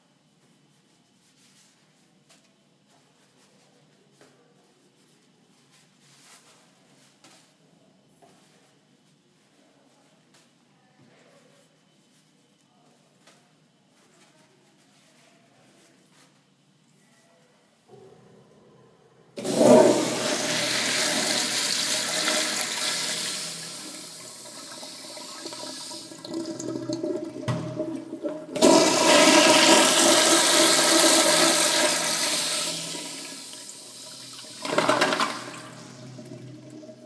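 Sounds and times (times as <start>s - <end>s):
toilet flushing: 19.4s - 37.0s.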